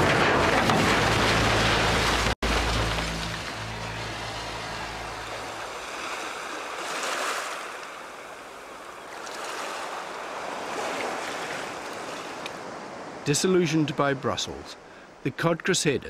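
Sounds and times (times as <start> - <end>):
low hum: 0.0 - 6.5
waves washing: 0.0 - 16.0.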